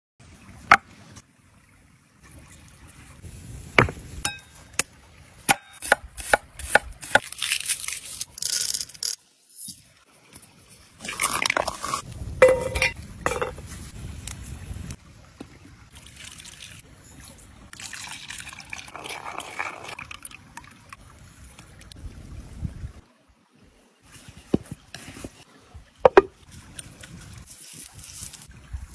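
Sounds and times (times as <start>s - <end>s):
rattling and scraping: 11.3s - 13.7s
knocks and taps on wood: 26.1s - 26.3s.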